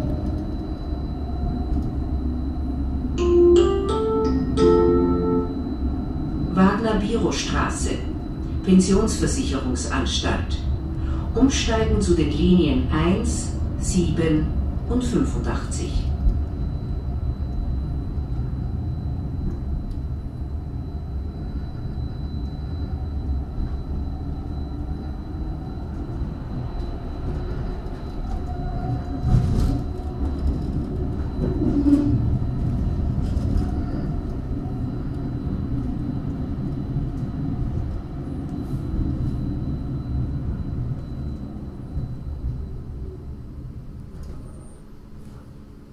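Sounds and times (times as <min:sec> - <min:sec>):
faint high whine: 0:00.0 - 0:45.9
tram wheels rumbling on rails: 0:00.0 - 0:45.9.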